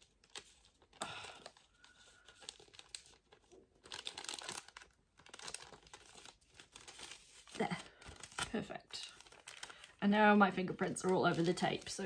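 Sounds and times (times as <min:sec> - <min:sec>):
plastic bag crinkling: 0:00.0 - 0:12.0.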